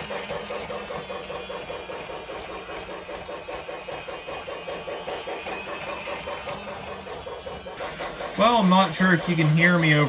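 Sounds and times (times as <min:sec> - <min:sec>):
toy train motors whirring: 0:00.0 - 0:10.0
toy train steam-chuffing effects: 0:00.0 - 0:10.0.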